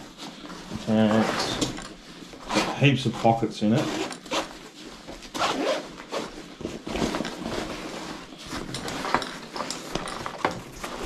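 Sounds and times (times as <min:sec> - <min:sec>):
nylon rustling: 0:00.0 - 0:11.0
zippers being pulled open: 0:03.8 - 0:04.6, 0:05.3 - 0:07.3.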